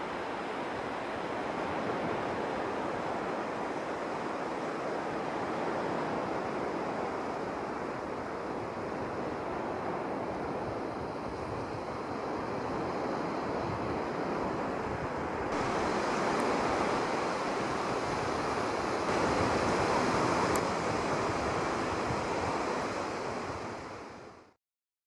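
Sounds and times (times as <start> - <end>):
waves washing up a sandy beach: 0.0 - 24.5.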